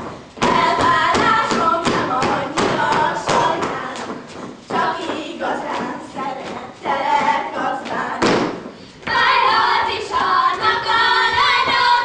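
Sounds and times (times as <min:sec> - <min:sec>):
foot stamp: 0:00.0 - 0:08.9
steps thudding on stage floor: 0:00.0 - 0:09.3
girls singing in unison: 0:00.0 - 0:12.0.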